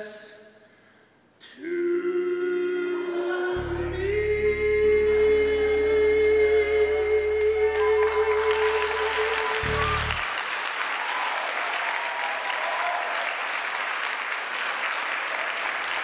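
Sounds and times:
held music chord ringing: 3.6s - 9.0s
audience applauding: 7.4s - 16.0s.

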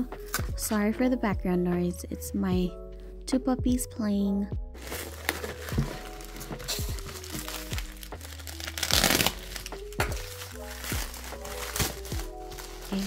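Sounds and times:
background music: 0.0s - 13.0s
plastic bag crinkling and tearing: 4.8s - 13.0s.

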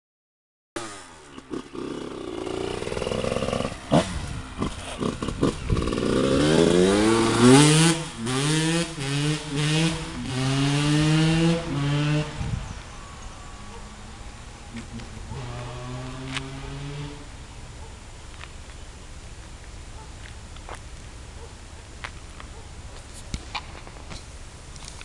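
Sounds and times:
dirt bike engine revving: 0.8s - 12.6s, 14.8s - 17.4s.

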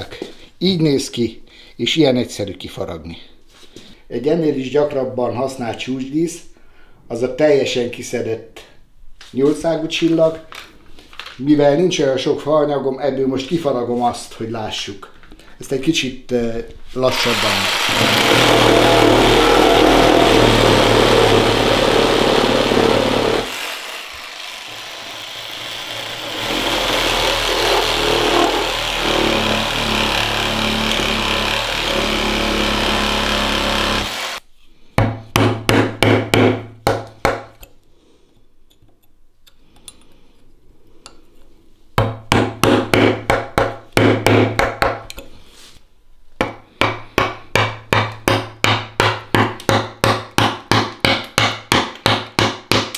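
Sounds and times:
reciprocating saw cutting wood: 17.1s - 34.4s
mallet striking chisel into wood: 35.0s - 37.6s, 42.0s - 45.1s, 46.4s - 52.9s.

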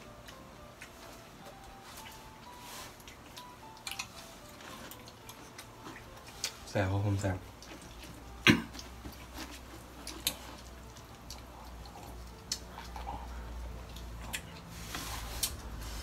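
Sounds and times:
low steady hum: 0.0s - 16.0s
lip smacks and chewing: 0.2s - 6.7s, 7.4s - 14.7s
eating clicks: 9.9s - 14.7s.

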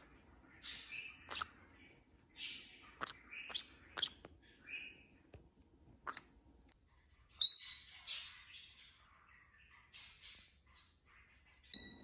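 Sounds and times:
parrot chirps and clicks: 1.2s - 1.5s, 2.8s - 4.4s, 6.0s - 6.8s.

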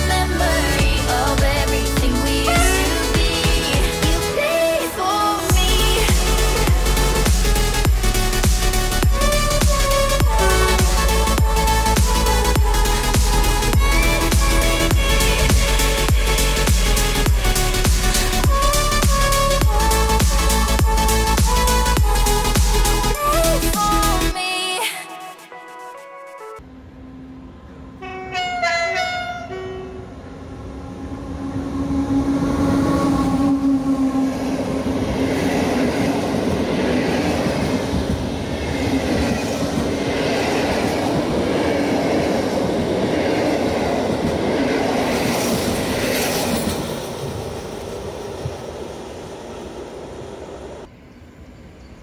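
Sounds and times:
train passing with rumble and clatter: 0.0s - 24.2s, 26.6s - 52.0s
train horn: 26.7s - 30.6s.

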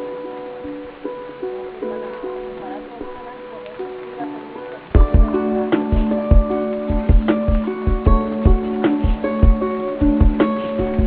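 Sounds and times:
plucked guitar-like music: 0.0s - 11.0s
steady low beat: 5.0s - 11.0s.

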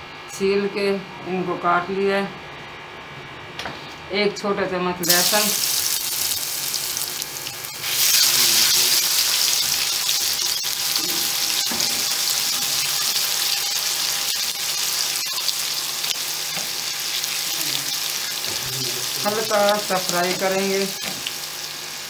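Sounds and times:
garlic sizzling in oil: 5.0s - 22.0s.

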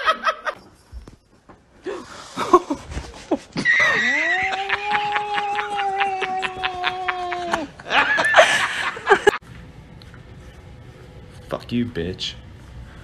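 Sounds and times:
kitten moaning cry: 3.6s - 7.7s.

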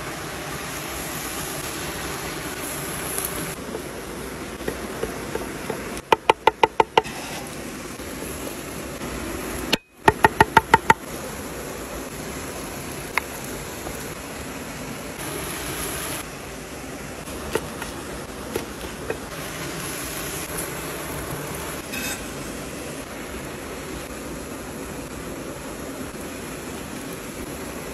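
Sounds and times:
steady hiss: 0.0s - 27.9s
cleaver chopping on wooden board: 4.6s - 7.1s, 9.8s - 11.0s.

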